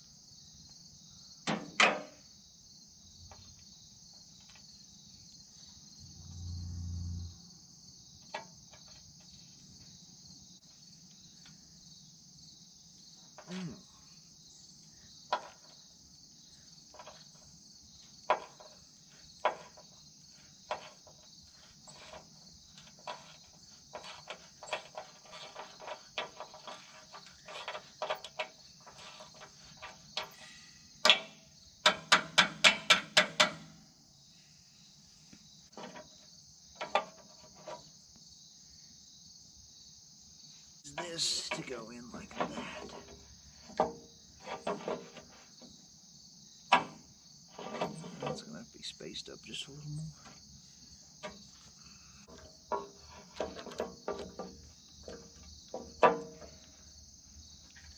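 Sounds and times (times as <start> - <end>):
insect chirring: 33.6 - 57.9.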